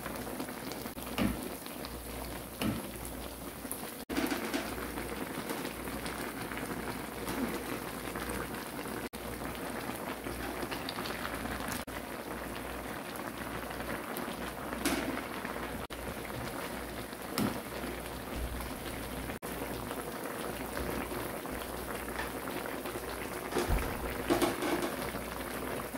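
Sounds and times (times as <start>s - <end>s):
stew bubbling at a boil: 0.0s - 25.9s
ladle going into pot: 23.4s - 25.2s.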